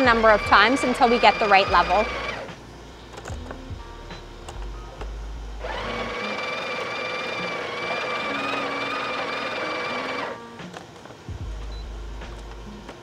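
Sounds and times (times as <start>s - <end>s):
coffee grinder whining: 0.0s - 2.5s, 5.6s - 10.6s.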